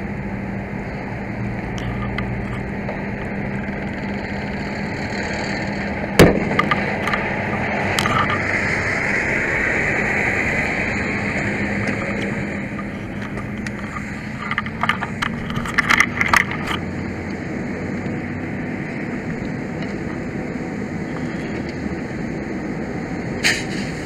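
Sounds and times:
low hum: 0.0 - 23.4
steady rushing noise: 0.0 - 24.0
camera being bumped and handled: 6.4 - 8.4, 11.8 - 16.9.

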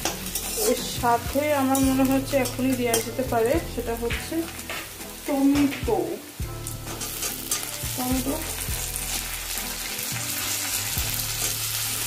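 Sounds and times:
metal spatula scraping wok: 0.0 - 3.6, 6.7 - 12.0
onions sizzling in oil: 0.0 - 12.0.

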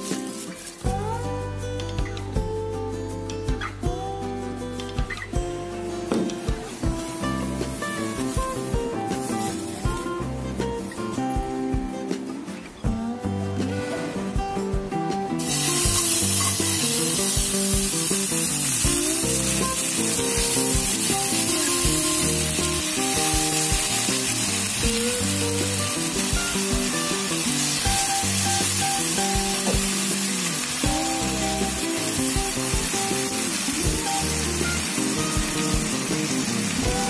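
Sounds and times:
chicken sizzling in oil: 0.0 - 1.0, 6.7 - 10.1, 15.4 - 37.0
background music: 0.0 - 37.0.

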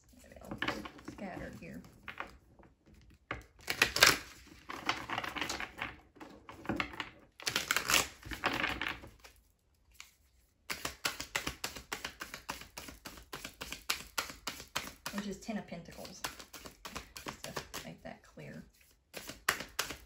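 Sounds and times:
cards sliding and rustling: 9.1 - 15.2, 15.9 - 18.0, 18.7 - 20.0
deck riffled with flicking clicks: 10.7 - 15.1, 19.2 - 20.0.

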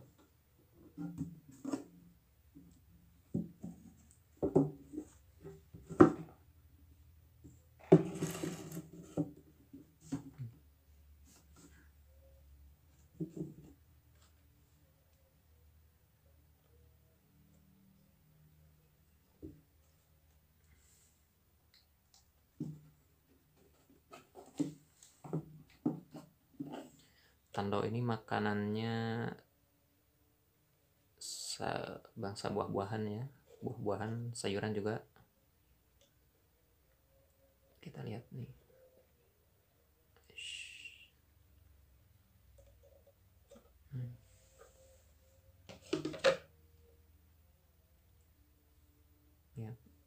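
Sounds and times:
rustling scrape: 8.0 - 9.2
plastic jar handled: 45.6 - 46.5.

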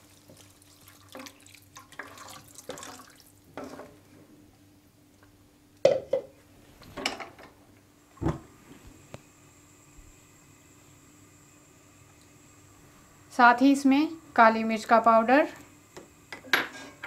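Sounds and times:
spatula scraping and knocking pan: 3.6 - 4.0.

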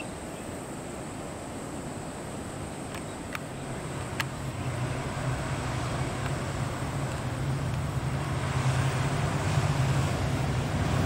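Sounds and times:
locomotive diesel engine drone: 3.4 - 11.0.

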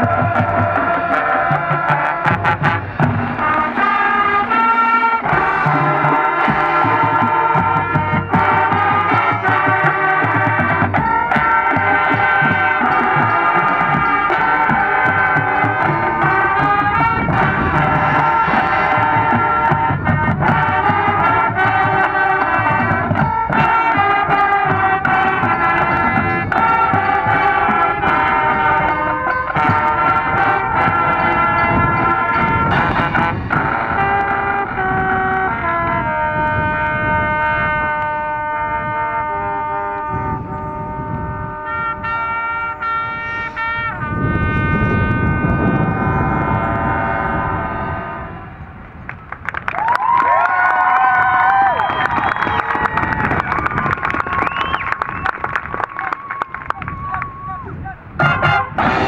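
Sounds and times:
brass chords: 0.0 - 49.1, 58.0 - 59.0
wind rumble on microphone: 5.2 - 59.0
sharp drum hits: 58.2 - 59.0.

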